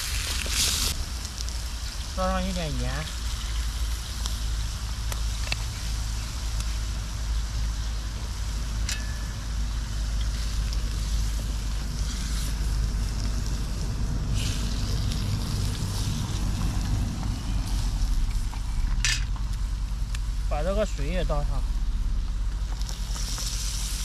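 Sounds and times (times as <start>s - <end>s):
pork frying in a pot: 0.0s - 24.0s
wind buffeting microphone: 9.4s - 24.0s.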